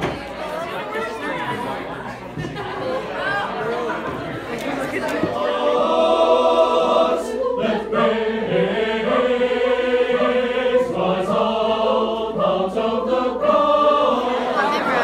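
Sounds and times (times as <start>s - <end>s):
choir singing in parts: 3.8s - 15.0s.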